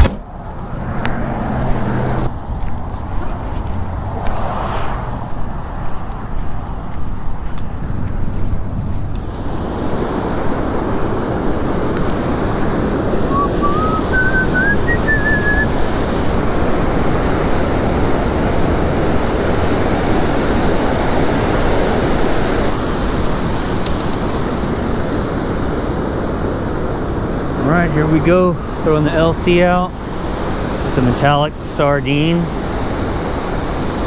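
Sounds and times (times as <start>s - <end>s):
ocean surf breaking: 9.4s - 22.8s, 24.8s - 34.0s
short rising chirp: 13.3s - 15.7s.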